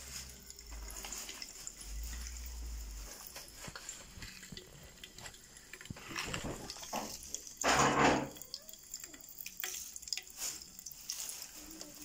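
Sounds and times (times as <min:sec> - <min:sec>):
popping candy crackles: 0:00.0 - 0:12.0
packet crinkling: 0:00.1 - 0:07.7, 0:09.6 - 0:12.0.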